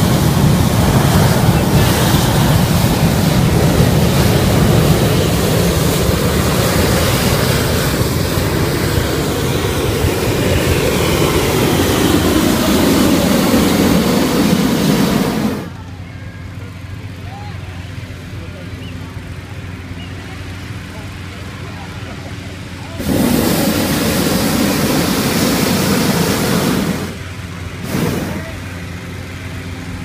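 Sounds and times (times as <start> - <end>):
propane burner blast: 0.0 - 15.9, 22.3 - 30.0.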